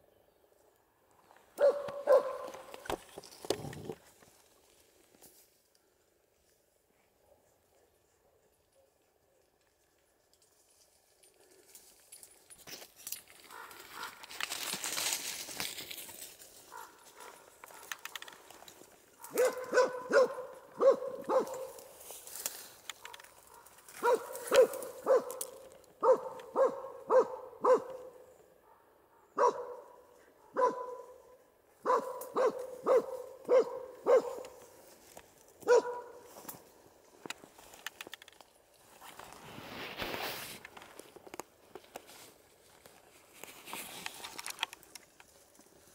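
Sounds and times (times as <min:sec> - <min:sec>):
dog barking: 0:01.6 - 0:02.7, 0:13.5 - 0:14.2, 0:16.7 - 0:18.0, 0:19.2 - 0:21.8, 0:23.1 - 0:34.6, 0:35.6 - 0:36.3
brush rustling: 0:09.7 - 0:26.8, 0:32.0 - 0:45.9.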